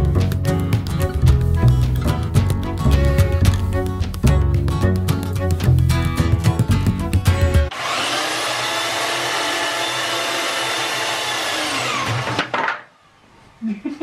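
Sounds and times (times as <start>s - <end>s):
background music: 0.0s - 7.7s
electric router whining: 7.7s - 12.5s.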